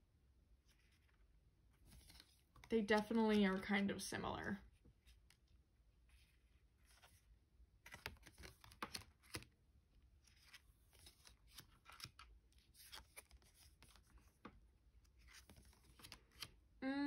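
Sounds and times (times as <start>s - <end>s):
cards flipping on wooden table: 1.9s - 3.6s, 7.8s - 9.5s, 10.2s - 14.5s, 15.2s - 16.5s.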